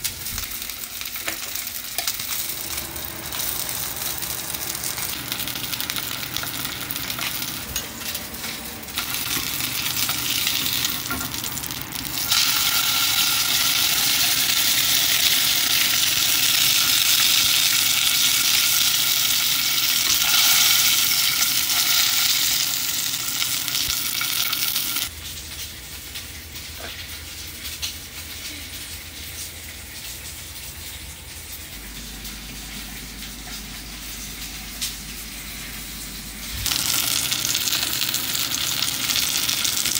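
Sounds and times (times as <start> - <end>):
steak sizzling in frying pan: 0.2 - 25.1, 36.6 - 39.9
steady low hum: 30.0 - 39.9.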